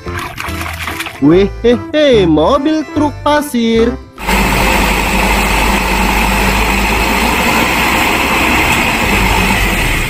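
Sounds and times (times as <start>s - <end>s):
hydraulic tipper raising: 4.2s - 10.0s
truck diesel engine running: 4.2s - 10.0s.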